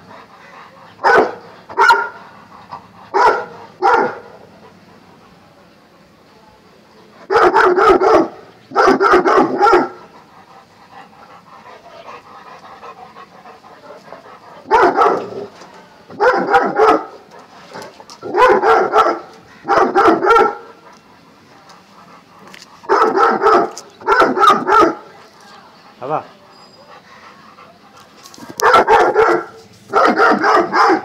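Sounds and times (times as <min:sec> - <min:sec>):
dog barking: 0:01.0 - 0:02.2, 0:03.1 - 0:04.3, 0:07.3 - 0:10.0, 0:14.7 - 0:15.4, 0:16.2 - 0:17.2, 0:18.2 - 0:20.7, 0:22.9 - 0:25.0, 0:28.6 - 0:31.0.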